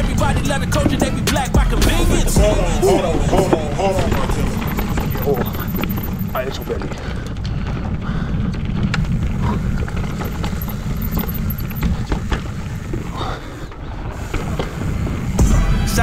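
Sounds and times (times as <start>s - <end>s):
bike clicks and knocks: 3.3s - 13.1s.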